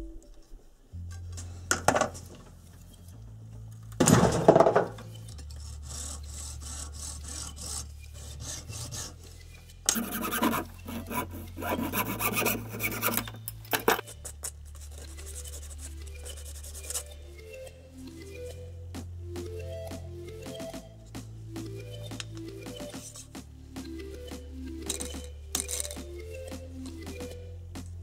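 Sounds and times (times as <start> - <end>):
file rasping on plastic pipe: 5.5 - 9.2, 9.9 - 13.3.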